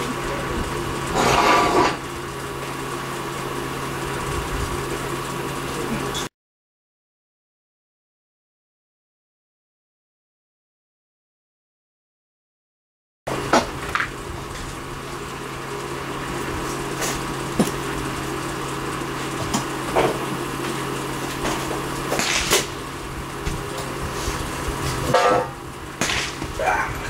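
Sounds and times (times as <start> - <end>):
steady low hum: 0.0 - 6.3, 13.3 - 27.0.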